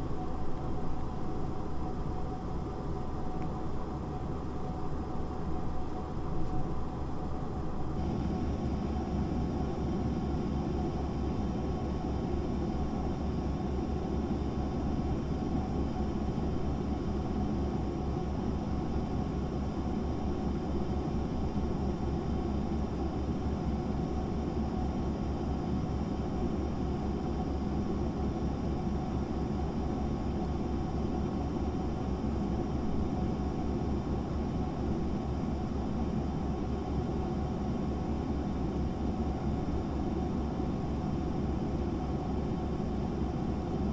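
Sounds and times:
faint steady tones: 0:00.0 - 0:43.9
fan heater whirring hum: 0:00.0 - 0:43.9.

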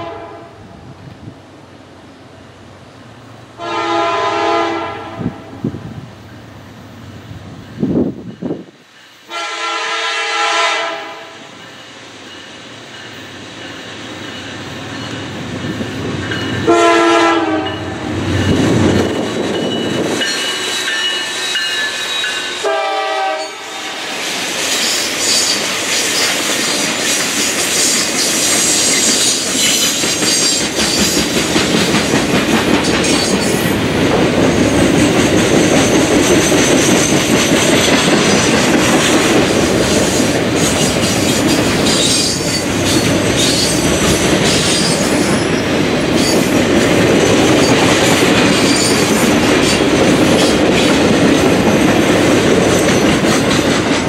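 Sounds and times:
locomotive horn blasts: 0:00.0 - 0:00.6, 0:03.6 - 0:05.5, 0:09.3 - 0:11.4, 0:16.7 - 0:18.0, 0:22.6 - 0:24.1
freight train rumbling past: 0:00.0 - 0:54.0
high rail hiss: 0:05.6 - 0:09.6, 0:23.4 - 0:33.0.

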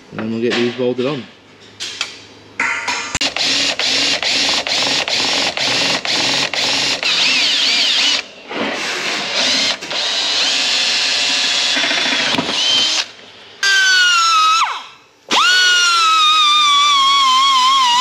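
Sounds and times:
cordless drill boring into steel: 0:03.2 - 0:08.3, 0:09.2 - 0:14.2, 0:15.3 - 0:18.0.

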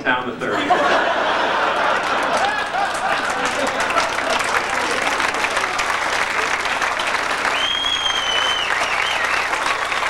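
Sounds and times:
audience applauding: 0:01.1 - 0:10.0
high steady whistle: 0:07.5 - 0:10.0.

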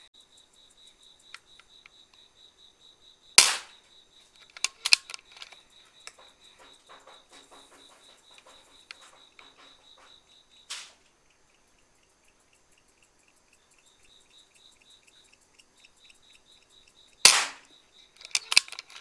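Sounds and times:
air rifle shot: 0:03.4 - 0:03.8, 0:10.7 - 0:11.0, 0:17.2 - 0:17.7
small clicks and knocks: 0:03.4 - 0:19.0.

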